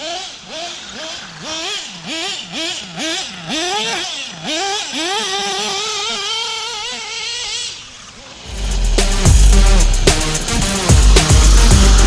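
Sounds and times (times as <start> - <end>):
small two-stroke engine revving: 0.0 - 12.0.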